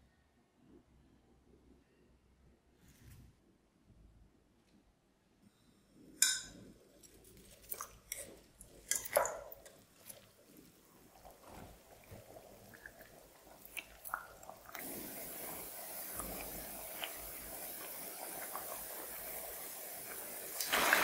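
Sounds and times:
oil sizzling hiss: 6.0 - 21.0
oil crackling and popping: 6.2 - 21.0.

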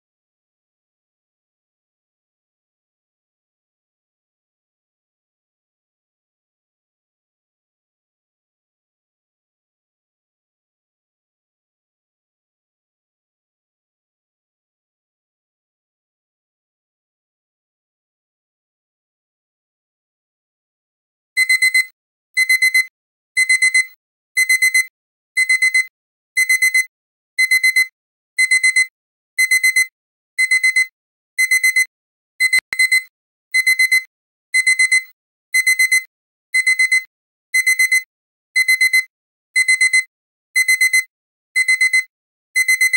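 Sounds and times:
digital alarm clock beeping: 21.4 - 42.9.

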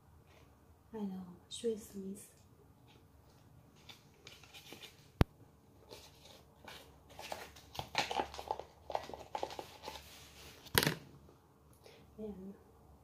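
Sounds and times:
paper packet crinkling: 5.9 - 10.9.

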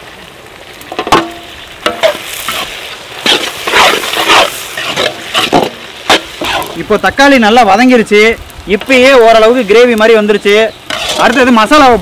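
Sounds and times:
food sizzling: 0.0 - 12.0
metal spatula scraping a pan: 1.2 - 6.8, 10.8 - 11.5.

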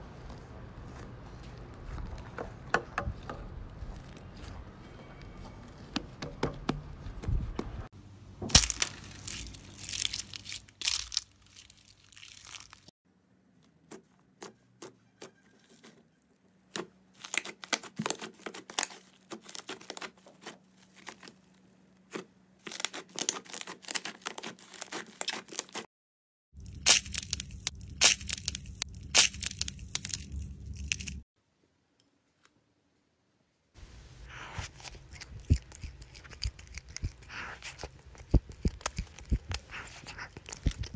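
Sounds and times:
slime crackling and popping: 8.5 - 12.9, 26.6 - 31.2, 34.8 - 40.9.

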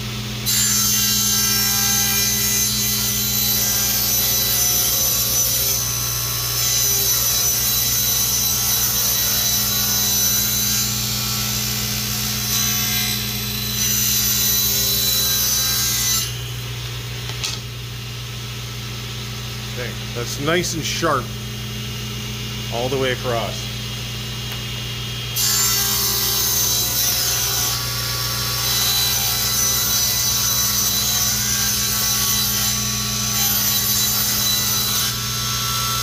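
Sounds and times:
table saw cutting wood: 0.0 - 24.0, 24.7 - 36.0
saw motor humming: 0.0 - 36.0.

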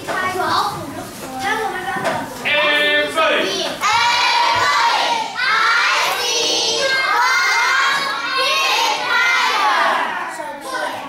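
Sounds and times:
children calling out in unison: 3.8 - 11.0.

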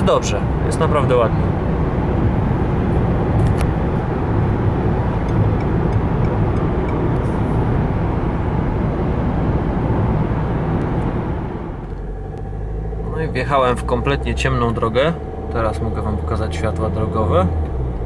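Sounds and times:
road and wind noise in car: 0.0 - 18.0.

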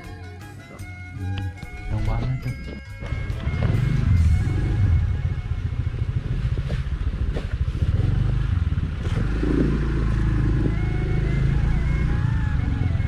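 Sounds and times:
motorcycle engine running: 2.8 - 13.0.

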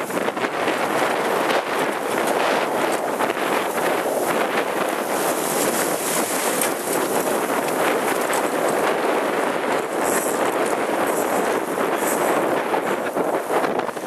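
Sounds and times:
water splashing past hull: 0.0 - 14.0
wind buffeting microphone: 0.0 - 14.0.

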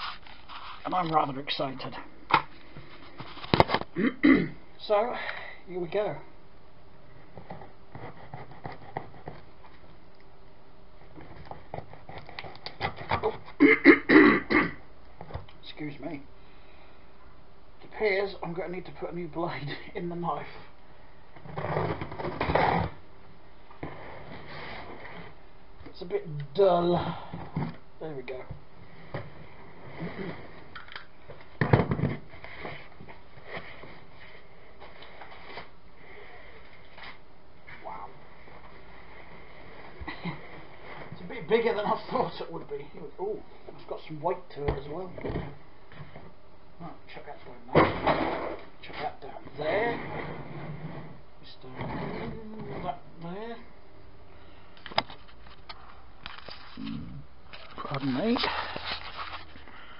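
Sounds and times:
knife scraping cardboard: 7.9 - 9.4.

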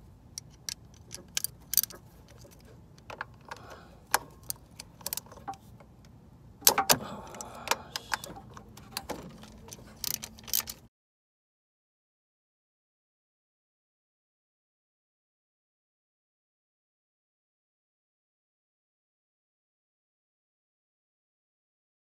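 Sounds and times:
socket wrench clicking: 0.4 - 5.7, 6.6 - 10.8.

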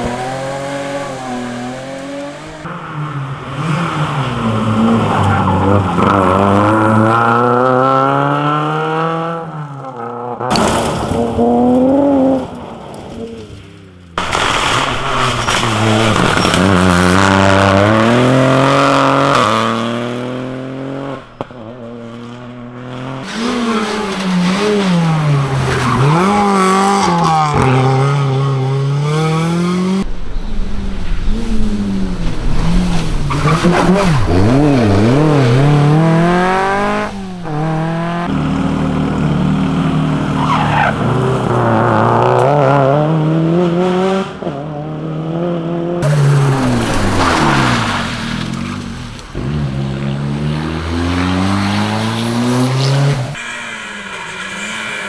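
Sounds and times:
rally cars revving past: 14.4 - 30.1, 31.2 - 55.0.

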